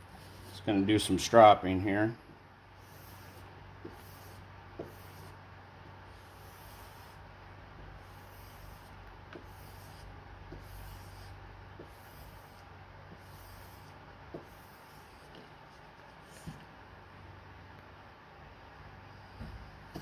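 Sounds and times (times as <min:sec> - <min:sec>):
steady low hum: 0:00.0 - 0:20.0
blade rubbing on strop: 0:02.8 - 0:05.4, 0:08.1 - 0:15.4.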